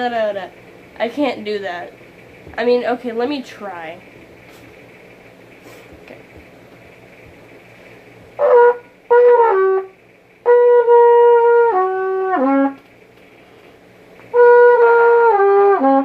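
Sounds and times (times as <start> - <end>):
solo trumpet playing: 8.4 - 12.9, 14.3 - 16.0.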